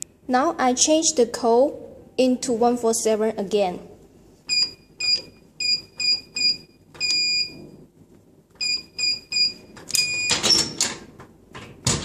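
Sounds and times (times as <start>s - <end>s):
keypad beeping: 4.5s - 7.6s, 8.6s - 10.7s.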